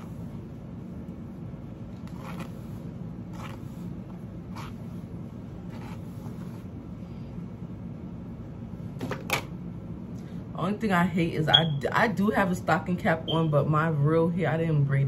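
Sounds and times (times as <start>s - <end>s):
steady low hum: 0.0s - 15.0s
hairbrush scraping through wig: 2.0s - 4.9s.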